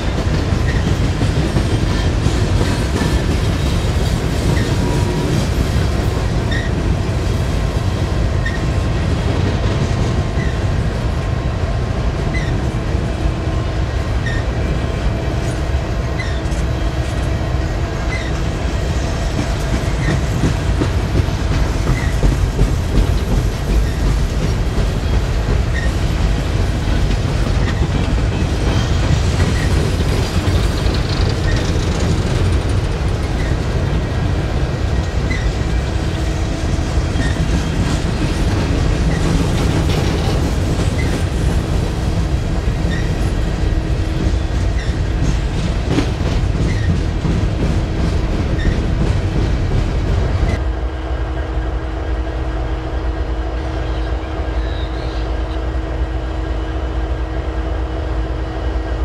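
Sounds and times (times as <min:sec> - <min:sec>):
wheels clicking over rail joints: 0:00.0 - 0:07.0, 0:19.3 - 0:50.6
diesel locomotives droning: 0:00.0 - 0:59.0
freight train rumbling past: 0:00.0 - 0:59.0.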